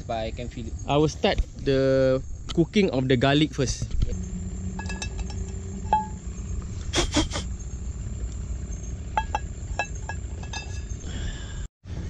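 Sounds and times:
pan scraping on stones: 3.6s - 11.0s
low rumble: 3.7s - 10.9s
frying pan metal clinks: 9.2s - 11.0s.

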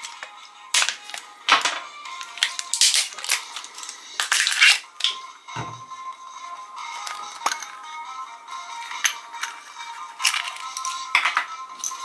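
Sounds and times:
background music: 0.0s - 12.0s
plastic label crinkling and tearing: 2.2s - 5.2s.

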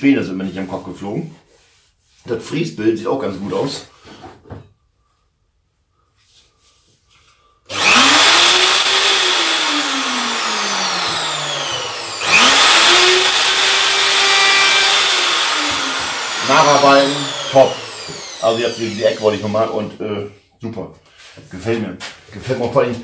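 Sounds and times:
router motor whining: 7.7s - 19.6s.

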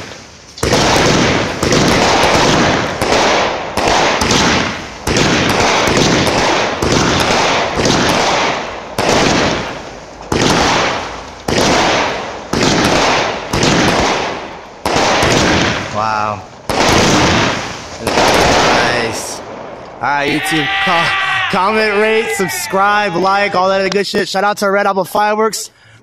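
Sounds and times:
firework cake shots firing: 0.0s - 16.0s, 16.6s - 19.4s.

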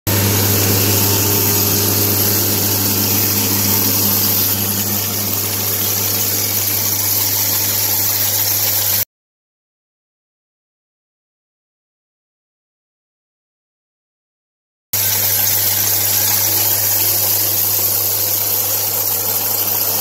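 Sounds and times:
trencher engine running: 0.1s - 9.0s.

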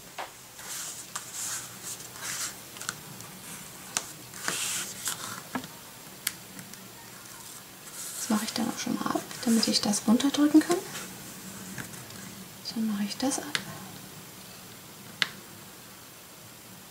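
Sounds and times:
cardstock sliding on a table: 3.5s - 5.6s.

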